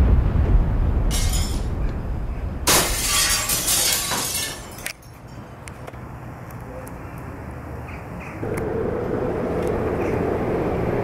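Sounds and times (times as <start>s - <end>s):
low rumble of blast: 0.0s - 3.0s
window glass shattering: 1.1s - 1.7s, 2.7s - 5.2s.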